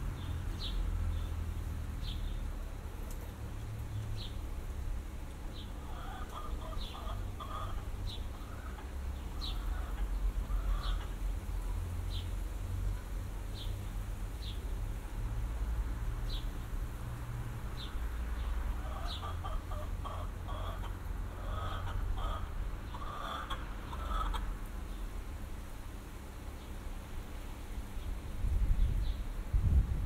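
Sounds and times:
chickens clucking: 5.7 - 11.2, 18.7 - 24.6
steady low rumble: 27.9 - 30.0.

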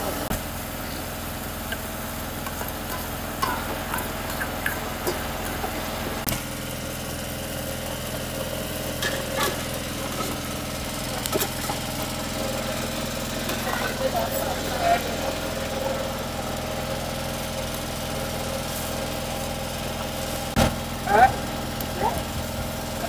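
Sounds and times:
steady engine-like hum: 0.0 - 23.0
stew bubbling in a pot: 0.4 - 18.4
metal ladle clinking on pot: 2.5 - 5.3.

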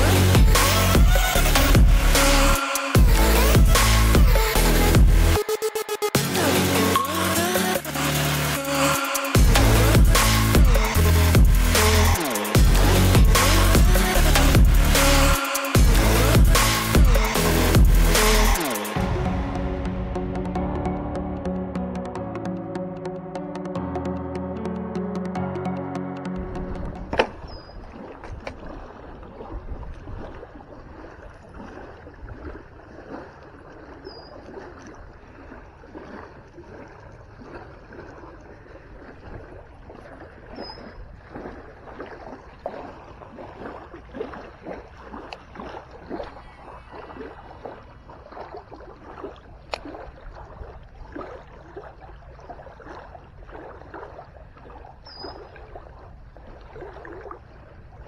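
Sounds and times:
wind rumble on microphone: 26.4 - 33.1.

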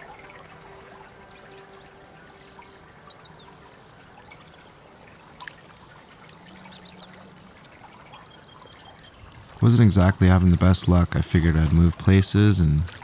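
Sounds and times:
river water flowing: 0.0 - 13.0
faint bird chirps: 6.0 - 9.7.

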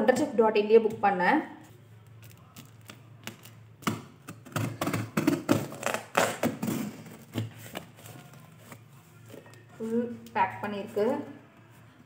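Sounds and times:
packing tape cut and ripped open: 2.2 - 7.8.

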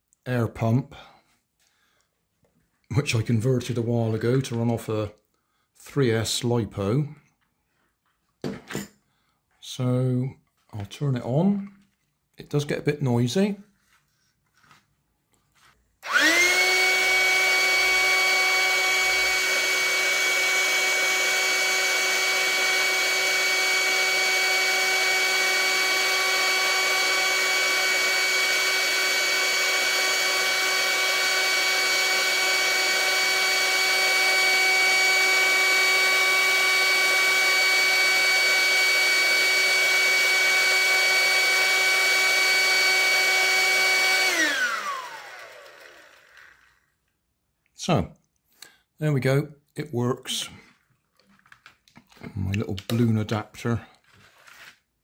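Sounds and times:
electric air pump whining: 16.0 - 47.0.

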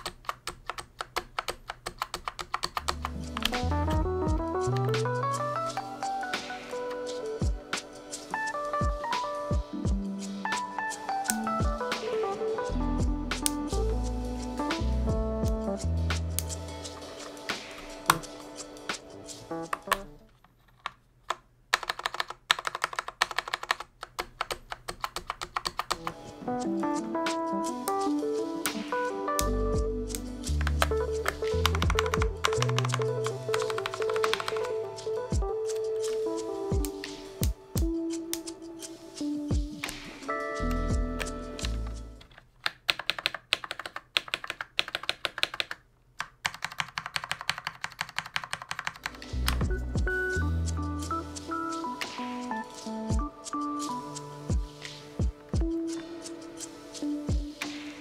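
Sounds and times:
keycap clicking rapidly: 0.0 - 3.6, 21.8 - 26.2, 30.1 - 34.7, 42.7 - 49.6
keyboard keys clacking: 0.0 - 20.3, 21.7 - 45.8, 46.4 - 58.0
background music: 2.6 - 20.4, 25.8 - 42.3, 47.9 - 58.0.

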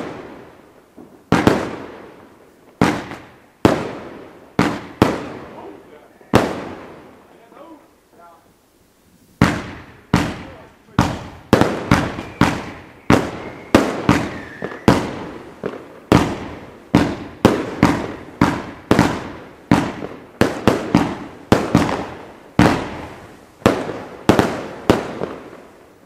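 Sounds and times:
aerial fireworks bangs: 0.0 - 2.2, 2.8 - 7.5, 9.4 - 25.8.

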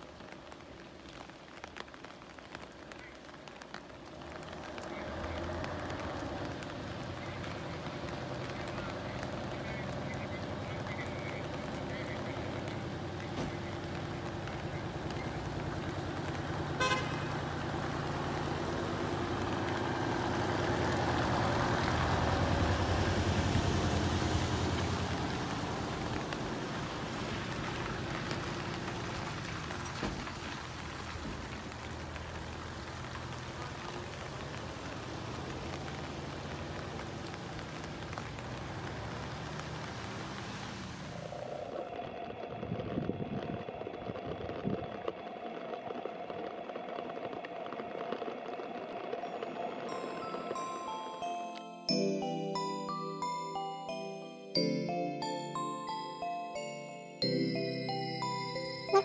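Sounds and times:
tyre hiss on wet road: 0.0 - 10.1, 12.4 - 41.8
diesel truck engine running: 4.2 - 40.2
horn toot: 16.8 - 17.4.

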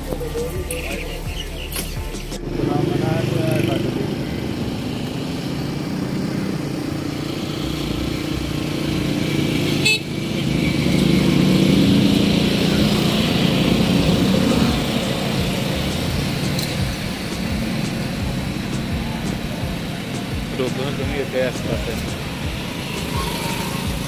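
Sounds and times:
vehicle engines running: 0.0 - 24.0
car horn toot: 9.8 - 10.2.

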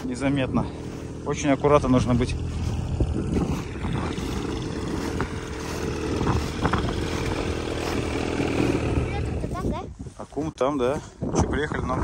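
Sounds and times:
snowmobile engine running: 0.0 - 9.9.

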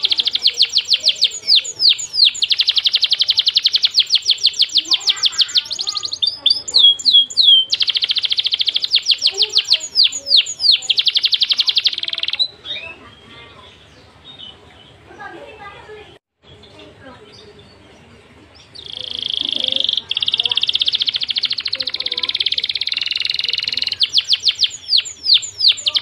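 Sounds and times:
songbird rapid trills: 0.0 - 12.9, 18.6 - 26.0.

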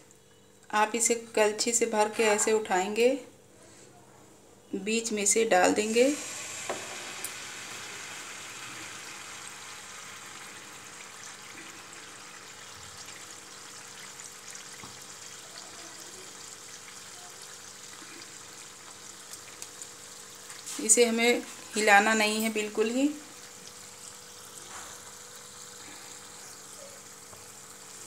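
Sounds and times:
batter sizzling in hot oil: 5.8 - 28.0.

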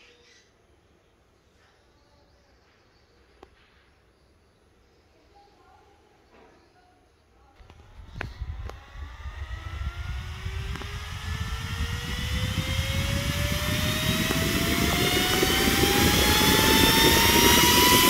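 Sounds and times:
electric fan motor whine: 7.6 - 18.0
rush of air: 7.6 - 18.0.

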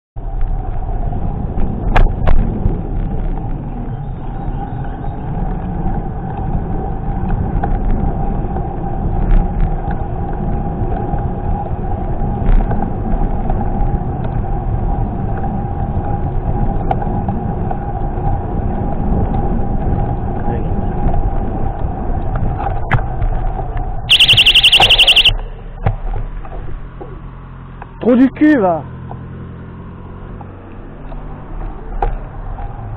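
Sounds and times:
road rumble: 0.2 - 32.9
steady whine: 24.1 - 25.3.

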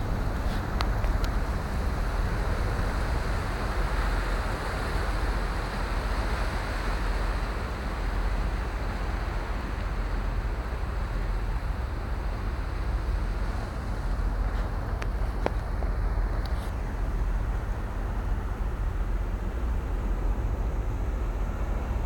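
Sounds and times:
deep rumble: 0.0 - 4.8, 12.8 - 22.0
water along ship hull: 0.0 - 22.0
wind on microphone: 0.0 - 22.0.

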